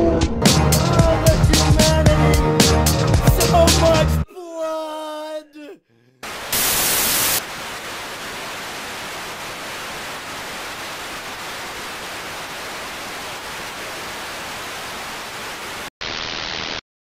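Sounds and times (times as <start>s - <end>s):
static hiss: 6.2s - 16.8s.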